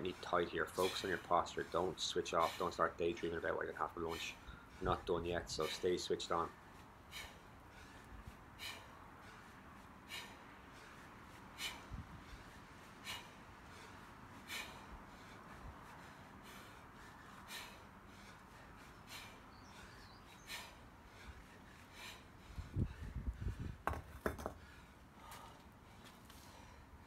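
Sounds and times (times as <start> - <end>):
wind rumble on microphone: 11.8 - 12.5, 22.4 - 23.9.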